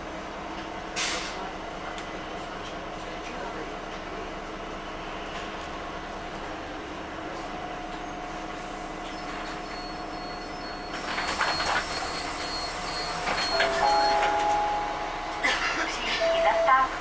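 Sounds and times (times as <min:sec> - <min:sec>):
bus drive and road noise: 0:00.0 - 0:17.0
faint high beeping: 0:11.6 - 0:15.6, 0:16.2 - 0:16.9.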